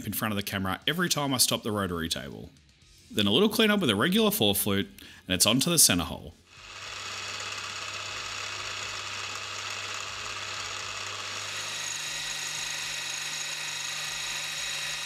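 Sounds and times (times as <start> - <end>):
high cutting whine: 6.5 - 15.0
milling machine motor hum: 6.5 - 15.0.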